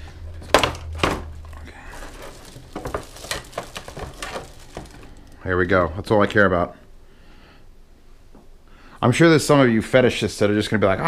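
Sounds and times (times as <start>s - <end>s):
plastic snapping: 0.5s - 5.4s.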